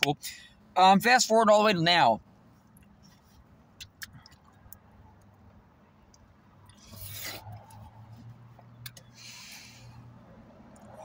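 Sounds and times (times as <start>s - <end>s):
breathy rush of air: 9.1s - 10.3s.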